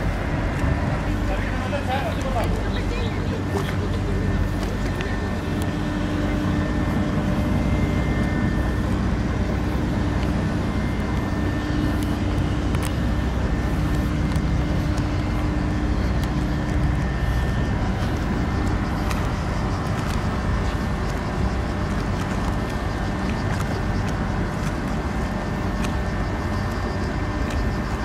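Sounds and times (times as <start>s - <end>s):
ferry engines droning: 0.0s - 28.0s
humming tone: 0.0s - 28.0s.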